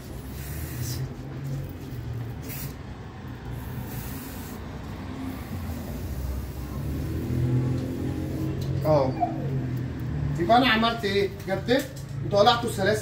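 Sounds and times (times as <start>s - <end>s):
spray can hissing: 0.2s - 1.2s, 2.3s - 2.9s, 3.5s - 8.5s.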